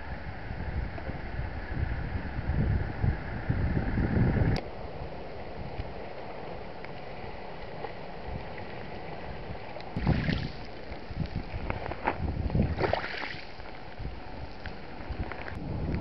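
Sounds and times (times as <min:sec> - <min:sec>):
wind rumble on microphone: 0:00.0 - 0:16.0
water splashes: 0:05.9 - 0:15.6
small waves lapping on pebbles: 0:06.1 - 0:15.6.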